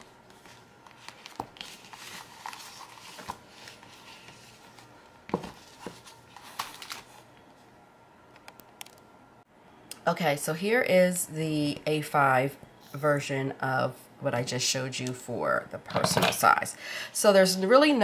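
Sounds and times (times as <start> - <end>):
paper rustling: 0.0 - 7.2.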